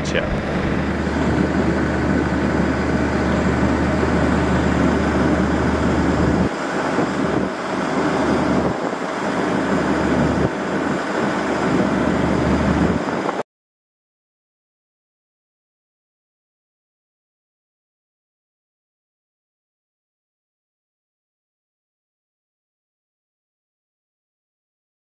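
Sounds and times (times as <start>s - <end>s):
outdoor rumble and hiss: 0.0s - 13.4s.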